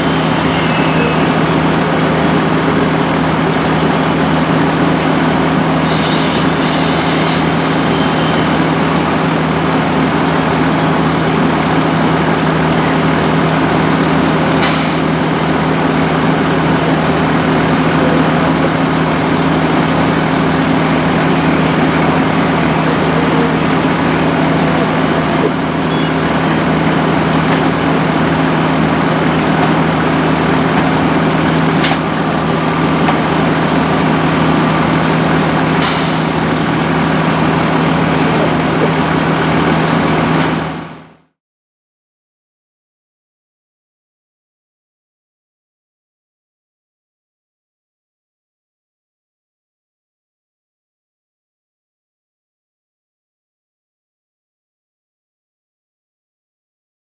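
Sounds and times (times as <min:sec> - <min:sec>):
diesel engine droning: 0:00.0 - 0:41.3
air hisses: 0:05.8 - 0:07.5, 0:14.6 - 0:15.2.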